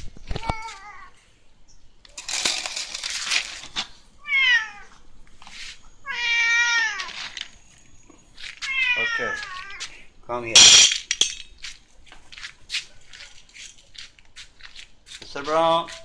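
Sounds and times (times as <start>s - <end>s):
cat meowing: 4.2s - 5.0s, 6.0s - 7.2s, 8.6s - 10.0s.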